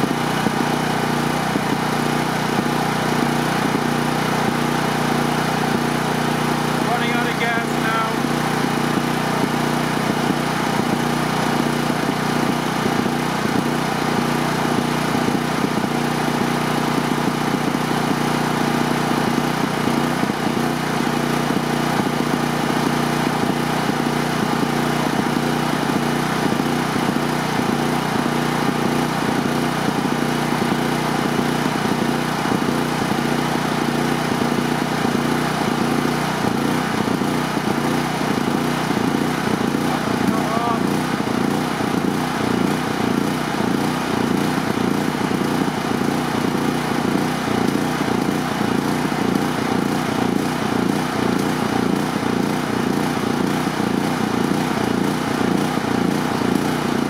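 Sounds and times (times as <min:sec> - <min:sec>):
portable generator running: 0:00.0 - 0:57.0.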